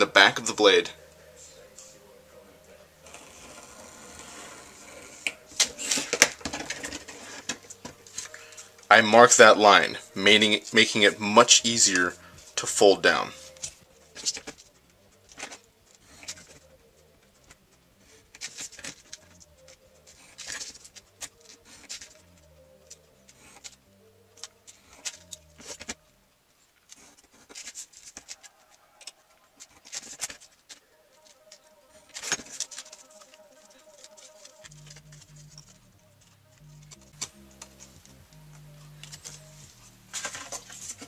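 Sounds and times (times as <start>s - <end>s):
card crackling: 3.0s - 9.6s, 10.3s - 26.1s, 26.8s - 41.0s
paper rustling: 11.9s - 16.7s, 17.3s - 23.8s, 24.4s - 26.0s, 26.8s - 41.0s.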